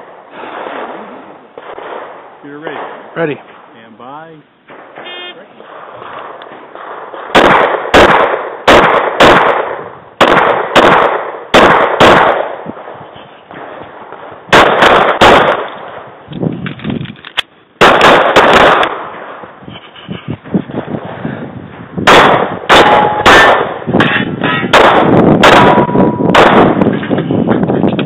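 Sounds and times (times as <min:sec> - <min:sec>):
pistol shots: 0:00.0 - 0:03.7, 0:04.7 - 0:12.9, 0:13.5 - 0:16.1, 0:17.8 - 0:19.4, 0:22.0 - 0:27.0.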